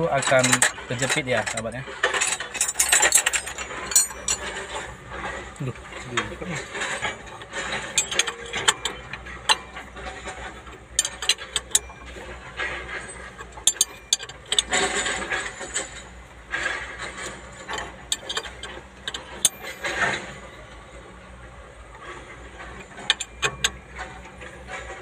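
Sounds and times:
metal spanner clinking on nut: 0.0s - 20.4s, 22.8s - 25.0s
grinding bursts: 0.0s - 21.4s.

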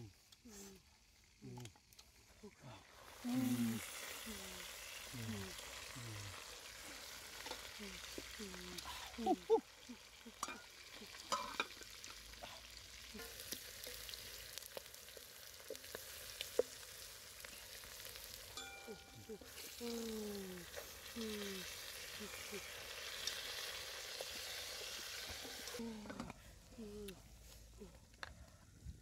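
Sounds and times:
broth simmering and bubbling: 0.0s - 28.9s
steady hiss: 2.2s - 25.8s
utensils knocking steel pot: 10.4s - 10.7s, 11.3s - 11.8s.

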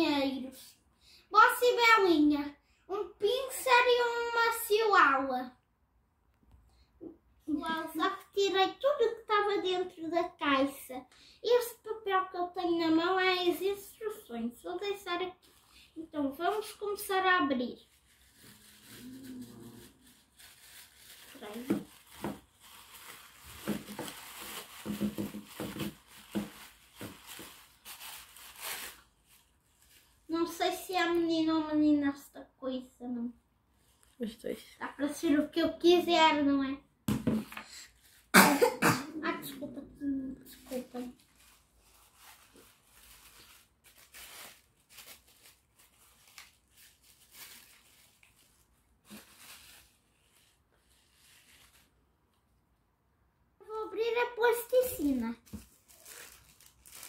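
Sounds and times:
plastic bag crinkling: 16.6s - 30.3s, 40.5s - 52.0s, 54.4s - 57.0s.

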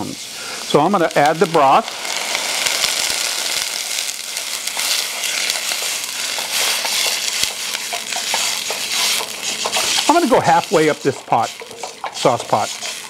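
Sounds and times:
vegetables sizzling in saucepan: 0.0s - 13.0s
spatula stirring: 3.9s - 13.0s.

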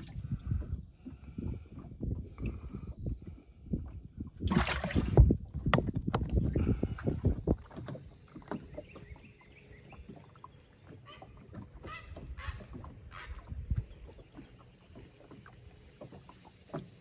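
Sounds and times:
water lapping against a hull: 0.0s - 17.0s
bird calling: 10.8s - 14.6s.

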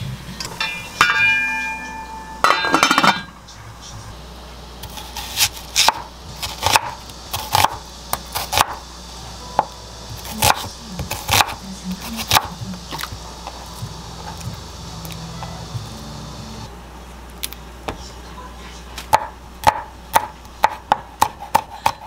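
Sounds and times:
metal cookware clinking: 0.4s - 3.4s
metal pot clattering: 2.4s - 3.3s
knife chopping on wooden board: 4.8s - 8.8s, 10.3s - 13.2s, 19.1s - 22.0s.

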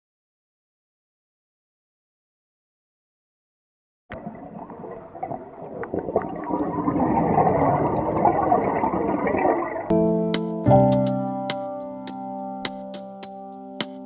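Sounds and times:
underwater bubbling and gurgling: 4.1s - 9.9s.

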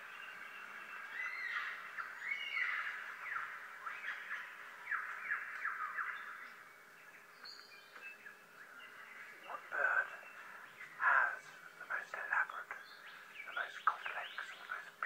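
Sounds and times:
whistled bird-like song: 0.0s - 10.0s.

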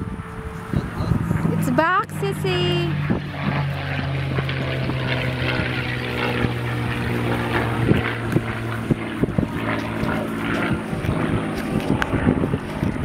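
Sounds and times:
airplane flying overhead: 0.0s - 13.0s.

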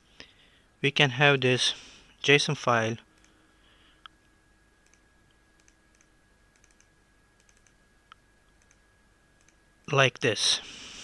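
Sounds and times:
faint mouse clicks: 5.6s - 8.8s.

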